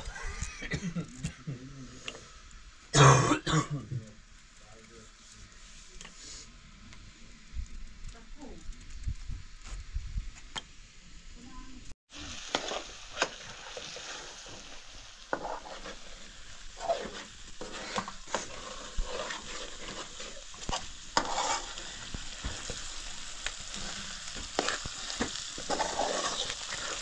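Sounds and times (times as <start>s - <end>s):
vegetables sizzling in a pan: 10.7s - 27.0s
metal spoon scraping a pan: 12.5s - 22.9s, 23.5s - 27.0s.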